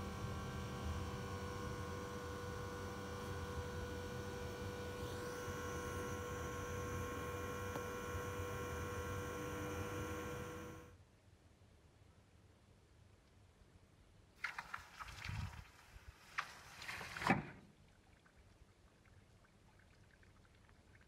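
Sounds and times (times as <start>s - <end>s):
gas burner hissing and rumbling: 0.0s - 10.9s.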